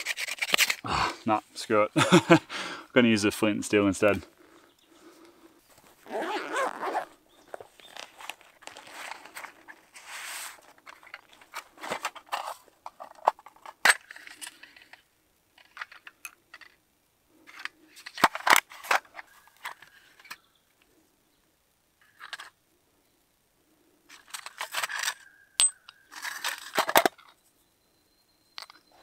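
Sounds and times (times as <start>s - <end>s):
fabric pouch rustling and ripping: 5.7s - 12.6s
metal tin clicks and clinks: 24.4s - 27.3s.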